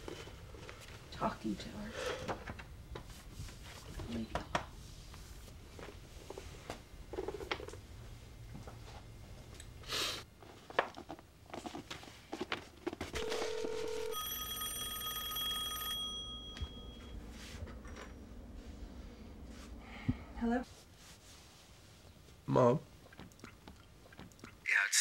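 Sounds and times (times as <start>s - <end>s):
telephone bell ringing: 13.2s - 17.2s
steady phone tone: 13.2s - 18.6s.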